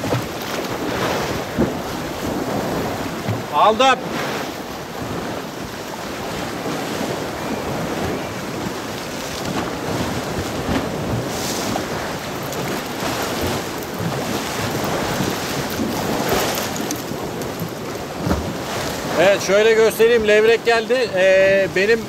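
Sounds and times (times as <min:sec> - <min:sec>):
wind buffeting microphone: 0:00.0 - 0:20.7
waves washing on shore: 0:00.0 - 0:22.0.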